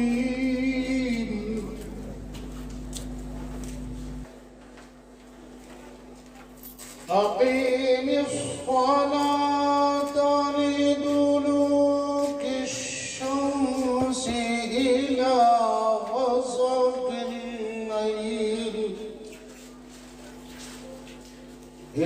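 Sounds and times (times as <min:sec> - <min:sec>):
man reciting melodically: 0:00.0 - 0:02.3, 0:07.1 - 0:19.3.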